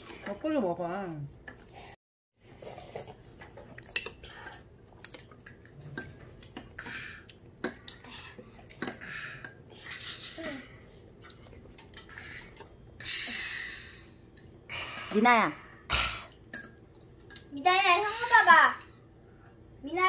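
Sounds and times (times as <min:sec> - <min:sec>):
utensils clinking against bowls: 0:03.8 - 0:06.6, 0:14.4 - 0:15.4, 0:16.3 - 0:17.5.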